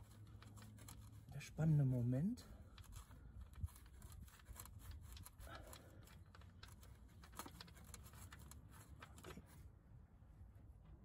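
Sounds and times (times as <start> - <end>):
faint clicking and scraping of plug: 2.6 - 9.5.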